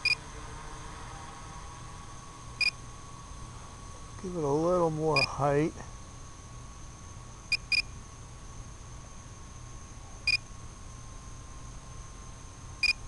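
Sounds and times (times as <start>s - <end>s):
short electronic beeps: 0.0s - 0.2s
steady faint hum: 0.0s - 13.0s.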